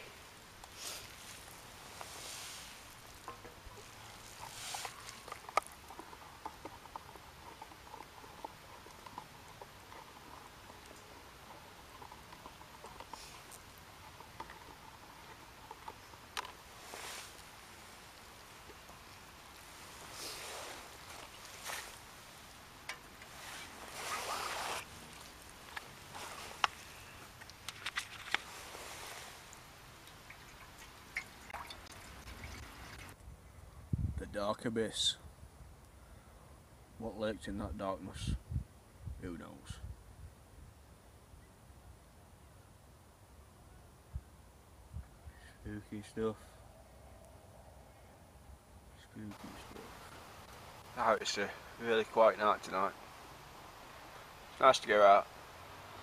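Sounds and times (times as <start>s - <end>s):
flames rushing in camp stove: 0.0s - 30.3s
fire crackling: 0.0s - 33.3s, 49.0s - 56.0s
hiss of flame: 0.7s - 3.1s, 16.8s - 17.6s, 19.8s - 22.4s.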